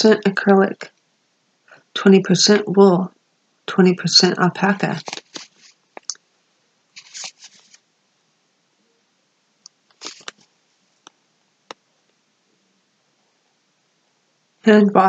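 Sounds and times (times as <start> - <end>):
yarn packaging rustling: 4.9 - 5.8, 7.0 - 7.8, 9.9 - 10.5.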